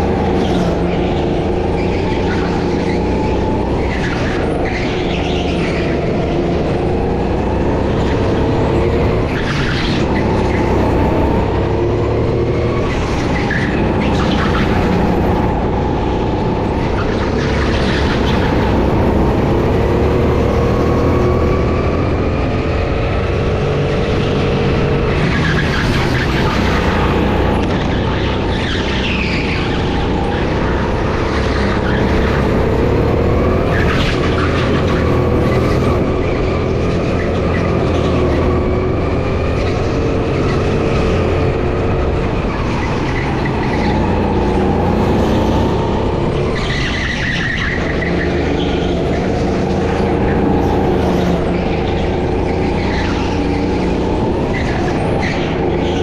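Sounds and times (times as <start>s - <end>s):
go-kart engine running hard: 0.0s - 56.0s
tyre squeals: 23.7s - 56.0s.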